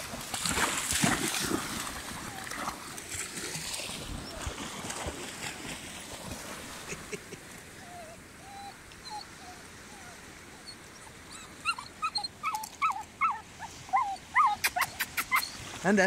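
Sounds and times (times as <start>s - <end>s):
puppy whimpering: 7.8s - 15.6s.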